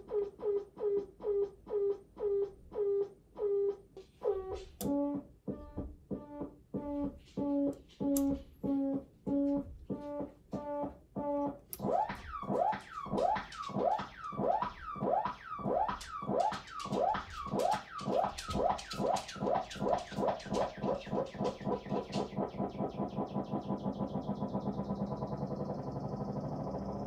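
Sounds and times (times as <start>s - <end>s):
synthesizer pulsed tone: 0.0s - 27.0s
synthesizer gliding sweeps: 10.0s - 27.0s.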